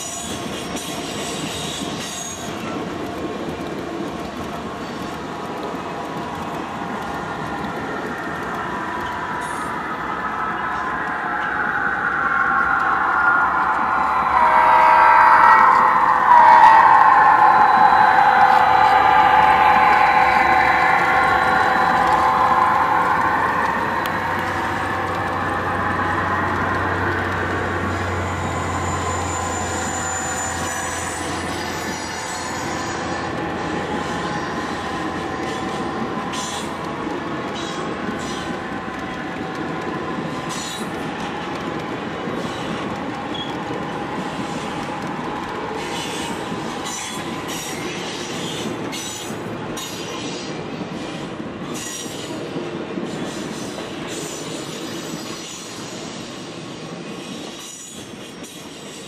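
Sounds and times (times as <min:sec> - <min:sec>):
low hum: 0:08.5 - 0:35.5.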